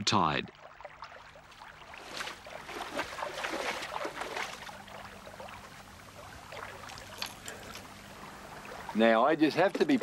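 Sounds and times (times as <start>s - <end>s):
footsteps splashing through water: 0.6s - 5.7s.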